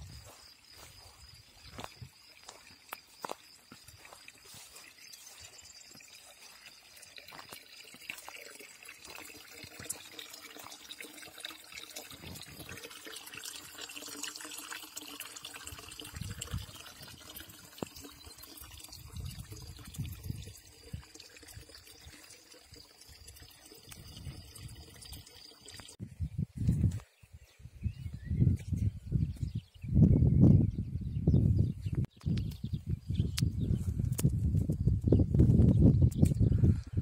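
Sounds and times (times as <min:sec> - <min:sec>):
water splashing into stone trough: 0:05.8 - 0:26.0.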